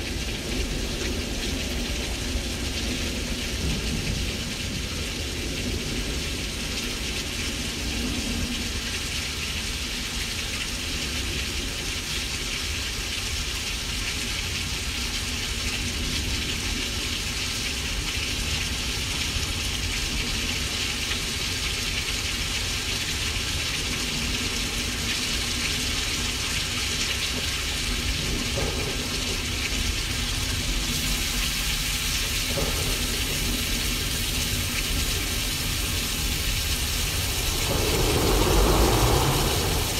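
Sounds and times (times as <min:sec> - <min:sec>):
rain hiss: 0:00.0 - 0:39.9
low rumble: 0:35.0 - 0:39.9.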